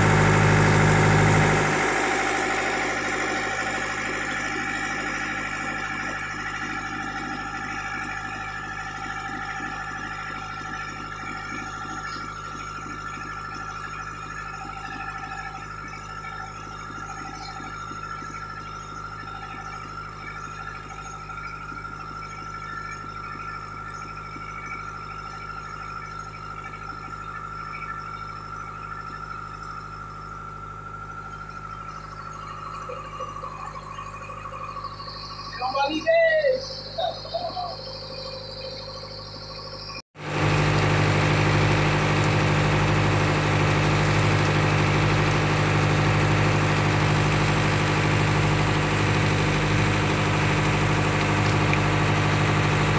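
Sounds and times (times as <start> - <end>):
boat engine running: 0.0 - 52.9
steady high tone: 31.4 - 40.0.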